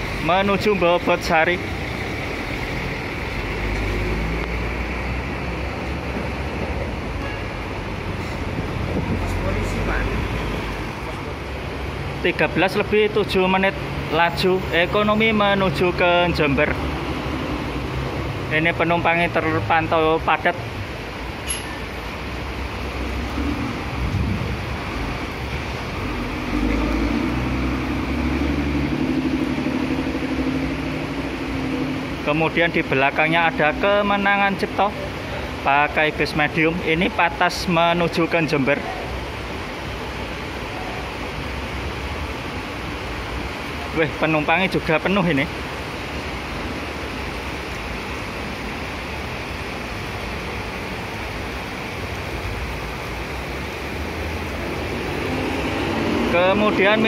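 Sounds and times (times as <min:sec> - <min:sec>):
bus engine rumbling past: 0:00.0 - 0:11.4, 0:22.4 - 0:34.1, 0:52.5 - 0:57.0
heavy rain hissing: 0:00.0 - 0:57.0.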